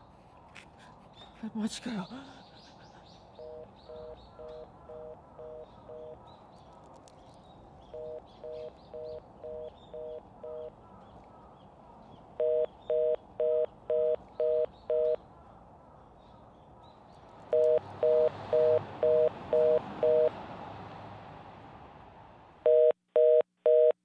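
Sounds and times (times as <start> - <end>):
telephone busy tone: 12.4 - 15.2, 17.5 - 20.4, 22.6 - 24.0.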